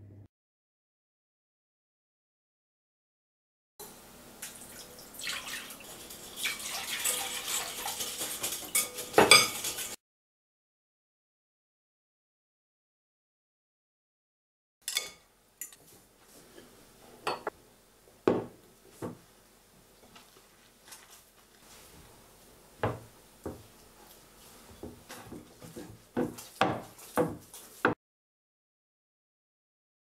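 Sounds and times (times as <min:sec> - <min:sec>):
dough kneading rustling: 0:20.0 - 0:28.0.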